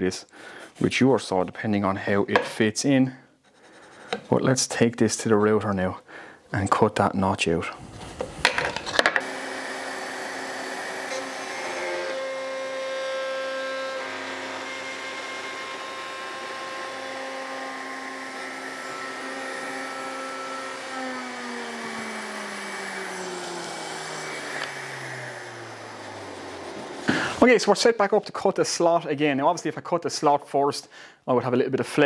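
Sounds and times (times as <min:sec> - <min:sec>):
dust extractor running: 0:09.2 - 0:27.4
router cutting wood: 0:09.2 - 0:28.1.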